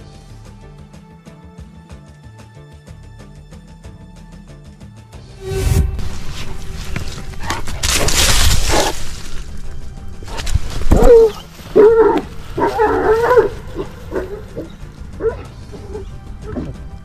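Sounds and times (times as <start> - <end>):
dogs barking and yelping: 10.3 - 16.8.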